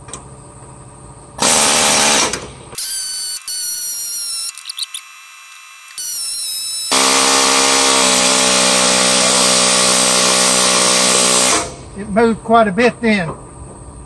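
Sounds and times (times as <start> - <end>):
pneumatic air hammer: 1.4 - 11.9.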